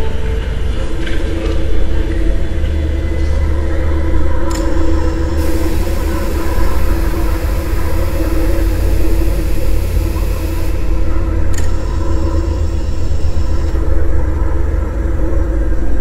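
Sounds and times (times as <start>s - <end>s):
droning hum: 0.0s - 16.0s
low rumble: 0.0s - 16.0s
high hiss: 4.8s - 13.7s.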